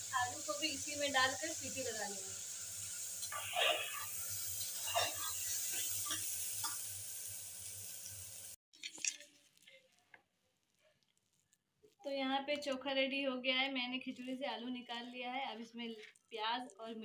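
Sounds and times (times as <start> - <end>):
oil sizzling in a pot: 0.0 - 10.2
metal utensils scraping: 4.7 - 6.2.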